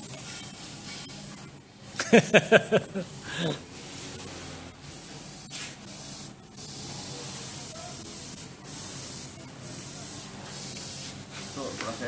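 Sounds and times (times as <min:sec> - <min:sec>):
airbrush spraying hiss: 0:02.9 - 0:12.0.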